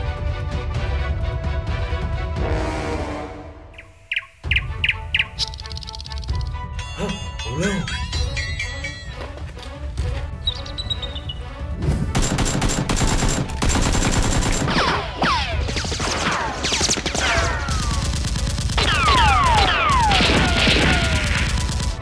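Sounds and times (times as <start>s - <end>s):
rapid automatic gunfire: 12.2s - 22.0s.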